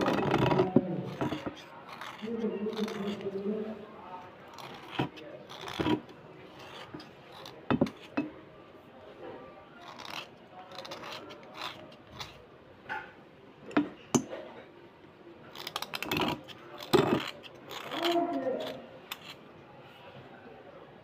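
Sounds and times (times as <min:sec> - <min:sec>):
knife scraping slate: 0:00.0 - 0:03.4, 0:04.5 - 0:08.3, 0:09.8 - 0:13.1, 0:15.5 - 0:19.5.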